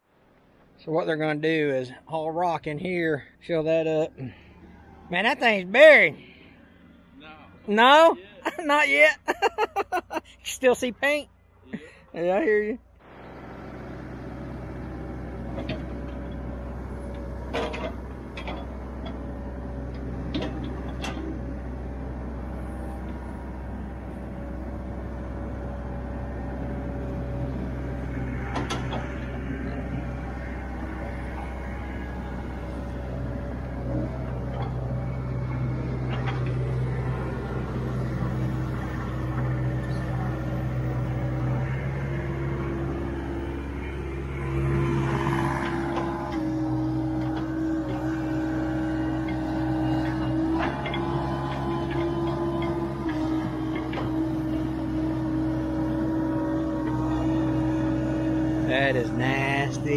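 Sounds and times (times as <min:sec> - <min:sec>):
excavator diesel engine running: 0:11.8 - 0:59.9
hydraulic whine: 0:13.0 - 0:59.9.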